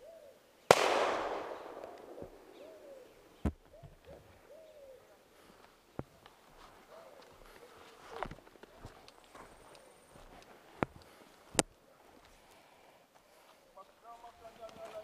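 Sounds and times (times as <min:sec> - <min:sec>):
doves cooing: 0:00.0 - 0:00.4, 0:01.5 - 0:05.5, 0:06.6 - 0:10.2
sharp clicks: 0:00.7 - 0:02.2
shotgun shot echoing: 0:00.7 - 0:03.1.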